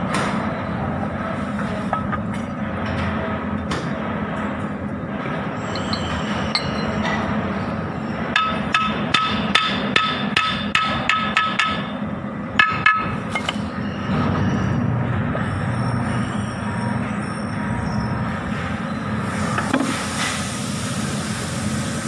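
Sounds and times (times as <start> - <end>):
steady background noise: 0.0 - 22.0
hammer tapping metal: 5.8 - 7.2, 8.4 - 11.9, 12.6 - 13.6.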